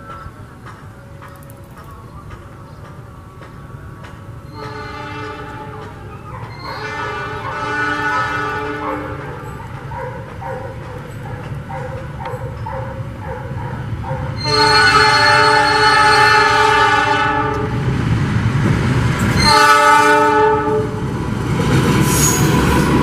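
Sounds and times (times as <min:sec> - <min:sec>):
locomotive rumble: 0:00.0 - 0:23.0
locomotive horn blasts: 0:04.5 - 0:05.9, 0:06.6 - 0:09.4, 0:14.4 - 0:17.8, 0:19.4 - 0:21.0.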